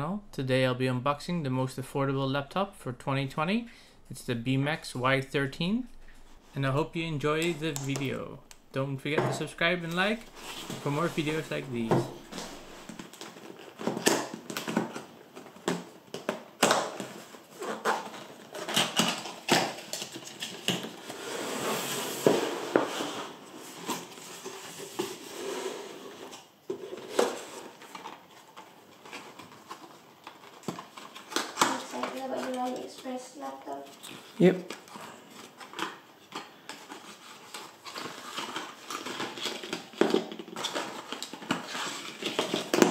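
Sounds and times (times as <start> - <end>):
cardboard scraping and rustling: 10.0 - 14.1, 20.1 - 33.2.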